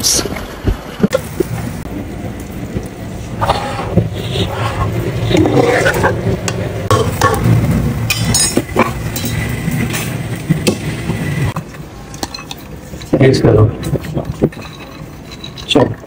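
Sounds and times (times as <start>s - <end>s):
steady low rumble: 1.0s - 15.2s
metal spoon clinking on pot: 8.1s - 10.1s.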